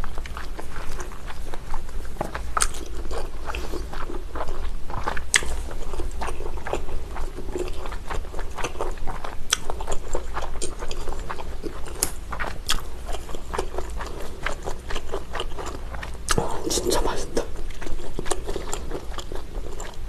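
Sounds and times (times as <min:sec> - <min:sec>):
low steady hum: 0:00.0 - 0:20.0
wet chewing and crunching: 0:00.0 - 0:20.0.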